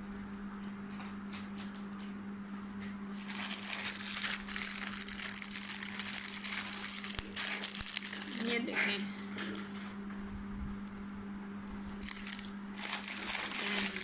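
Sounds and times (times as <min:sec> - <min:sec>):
steady low hum: 0:00.0 - 0:14.0
plastic packets crinkling: 0:03.2 - 0:09.7, 0:12.0 - 0:14.0.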